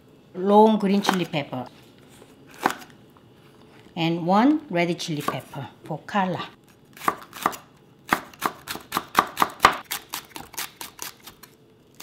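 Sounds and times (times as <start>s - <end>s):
knife chopping on wooden board: 7.0s - 10.5s.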